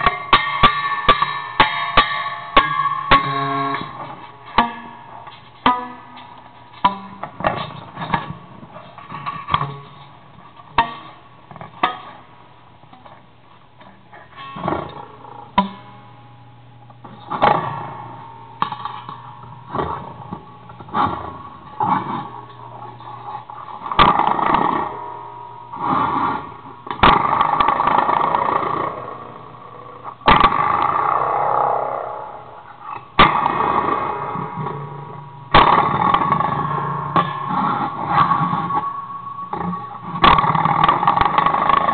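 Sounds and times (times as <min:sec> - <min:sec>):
metallic wire plucks: 0:00.0 - 0:10.1
metal plate with springs ringing: 0:00.0 - 0:41.9
rough metallic sound: 0:20.9 - 0:41.9.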